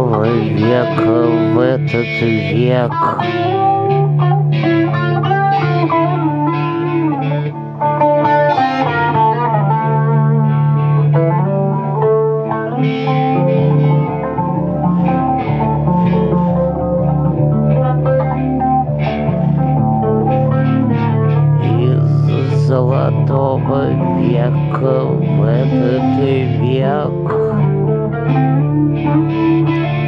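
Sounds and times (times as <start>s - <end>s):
acoustic and electric guitars: 0.0s - 30.0s
low bass: 9.7s - 30.0s.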